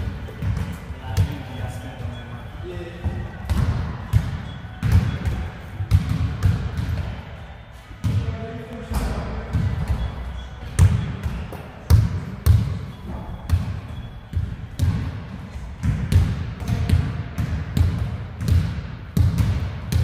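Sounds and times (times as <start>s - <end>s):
basketball bouncing on court: 0.0s - 2.2s, 3.0s - 20.0s.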